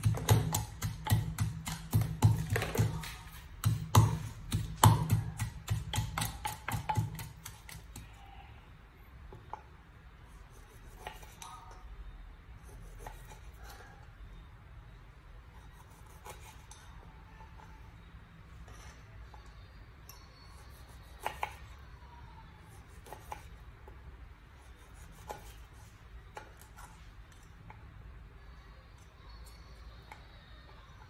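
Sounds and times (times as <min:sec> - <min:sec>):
pestle knocking in wooden mortar: 0:00.0 - 0:08.0.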